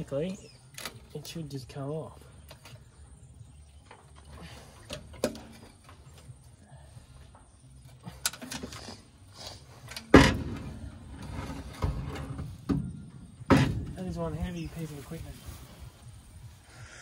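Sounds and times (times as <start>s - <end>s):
metal clunks and scrapes: 2.4s - 6.6s, 7.2s - 14.2s.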